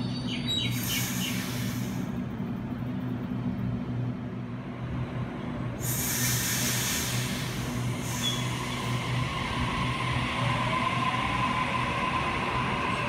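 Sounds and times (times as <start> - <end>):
electric train humming: 0.0 - 13.0
train air hiss: 0.6 - 2.3, 5.8 - 10.9.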